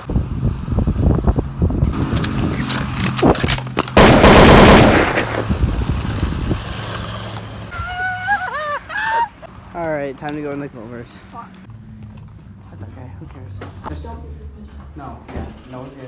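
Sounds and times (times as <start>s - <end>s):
inline skate wheels rattling on pavement: 4.8s - 7.7s.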